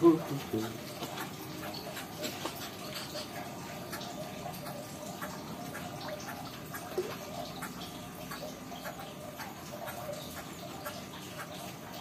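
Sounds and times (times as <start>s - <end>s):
water dripping: 0.0s - 12.0s.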